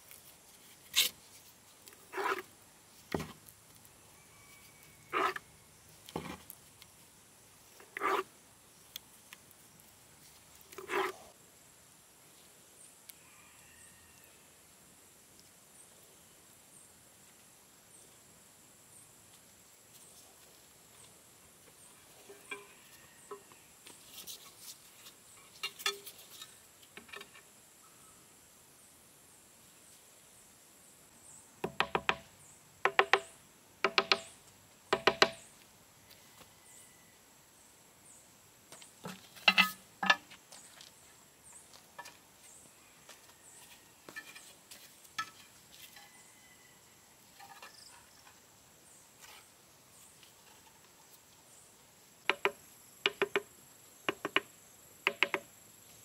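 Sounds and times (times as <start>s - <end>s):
small scrapes: 0.0s - 2.5s, 4.4s - 5.5s, 7.7s - 8.3s, 10.2s - 11.3s, 22.1s - 27.5s, 49.2s - 50.8s
knocks on tile and stone: 31.6s - 32.2s, 32.9s - 34.3s, 34.9s - 35.4s.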